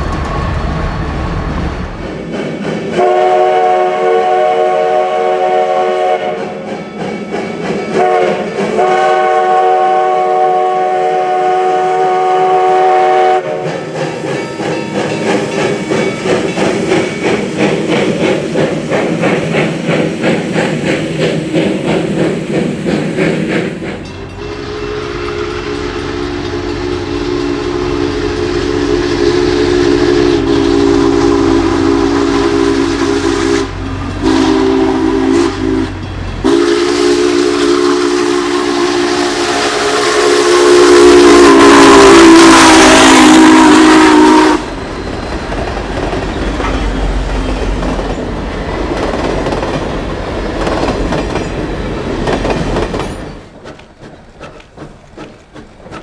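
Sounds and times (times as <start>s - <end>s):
steam locomotive chuffing: 0.0s - 56.0s
train rumble: 0.0s - 56.0s
steam locomotive chime whistle: 2.9s - 17.8s, 24.0s - 48.9s
low-pitched chime whistle: 24.0s - 30.4s.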